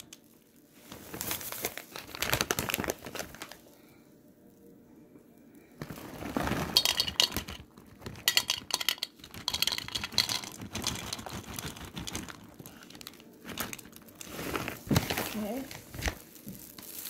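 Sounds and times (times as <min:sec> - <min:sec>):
trail mix pouring into plastic cups: 0:05.8 - 0:17.0.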